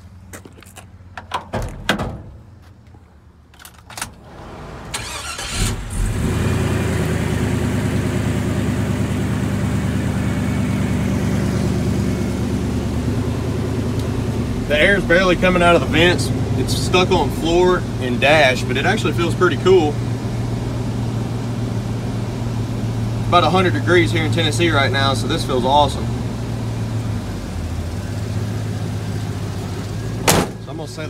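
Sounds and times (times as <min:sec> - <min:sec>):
truck engine starting and idling: 0:03.4 - 0:31.0.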